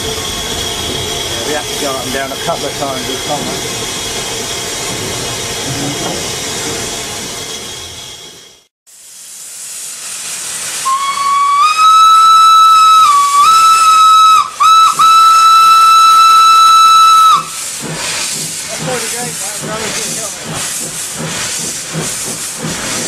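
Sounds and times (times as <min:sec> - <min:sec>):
steam hissing: 0:00.0 - 0:23.0
steam locomotive whistle: 0:10.8 - 0:17.6.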